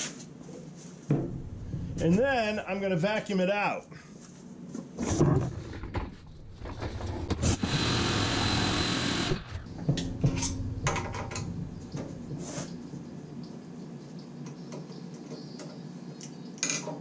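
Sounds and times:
handling clunks and knocks: 1.1s - 2.3s, 5.0s - 7.5s, 9.6s - 12.4s
shop vacuum running: 6.4s - 12.8s.

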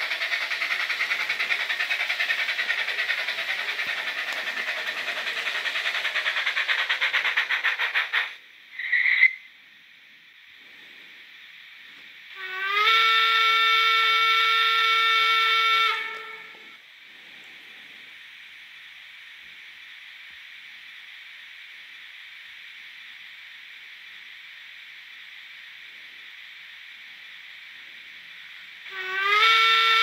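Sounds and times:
model train steam whistle: 0.0s - 9.6s, 12.1s - 17.4s, 27.2s - 30.0s
steady steam hiss: 0.0s - 30.0s.

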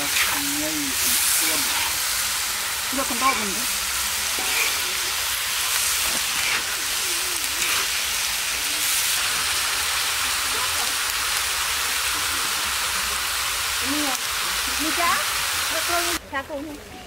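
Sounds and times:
metal spatula stirring: 0.0s - 9.0s
food sizzling in a wok: 0.0s - 16.9s.

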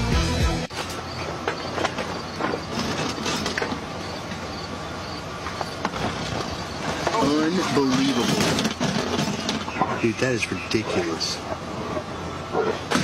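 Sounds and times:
bear knocking and scraping metal: 1.4s - 3.9s, 5.6s - 10.0s.

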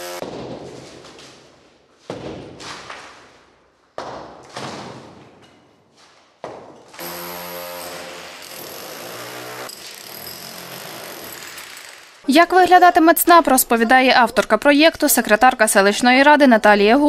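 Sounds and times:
electric power tool running: 0.0s - 0.2s, 7.0s - 12.2s
sledgehammer hitting brick wall: 0.1s - 1.2s, 2.1s - 3.4s, 4.0s - 5.6s.

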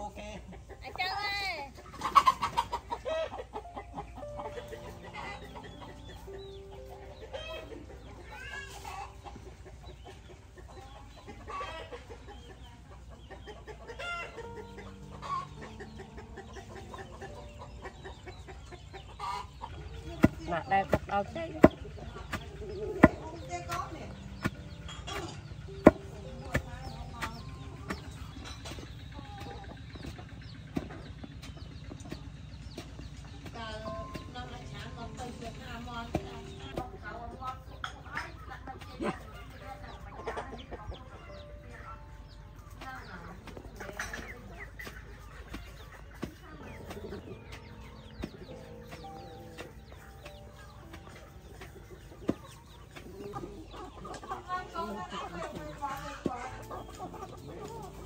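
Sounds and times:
chickens clucking: 0.0s - 58.0s
wooden pestle pounding in mortar: 20.2s - 23.8s.

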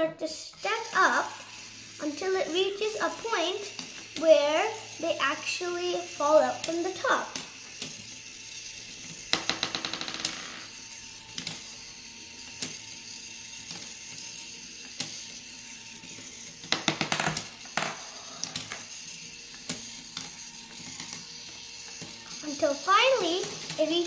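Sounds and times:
small toy motor running: 0.0s - 24.0s
steel marbles clicking on wooden tracks: 0.3s - 8.1s, 9.3s - 10.8s, 16.6s - 24.0s.

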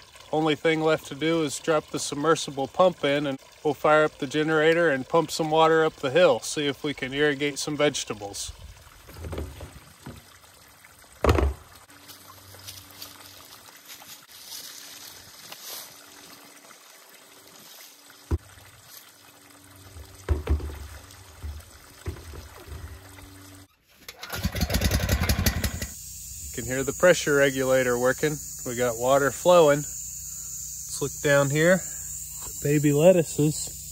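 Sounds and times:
water trickling from spigot: 0.0s - 14.1s, 16.0s - 23.7s
knocks of pump and hose: 9.0s - 10.4s, 11.2s - 11.8s, 18.3s - 18.5s, 19.9s - 23.2s
generator engine running: 24.1s - 26.0s.

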